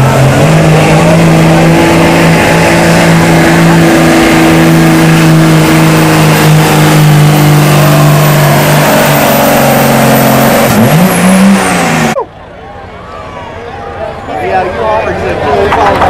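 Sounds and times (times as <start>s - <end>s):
diesel engine at high revs: 0.0s - 12.2s.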